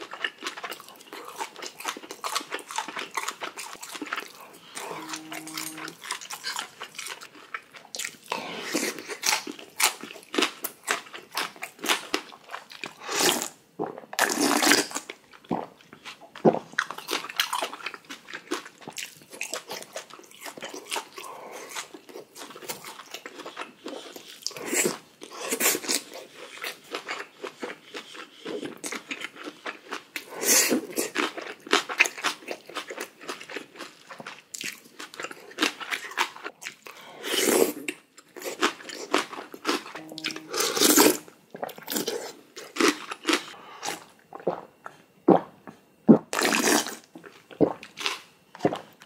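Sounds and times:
person chewing and crunching food: 0.0 - 49.0
mouth noises: 4.4 - 6.0, 39.9 - 41.7.

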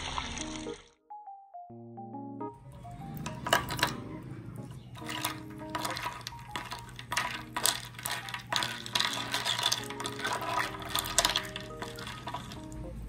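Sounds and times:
ice cubes clinking in glass mug: 3.3 - 4.0, 5.0 - 12.8.

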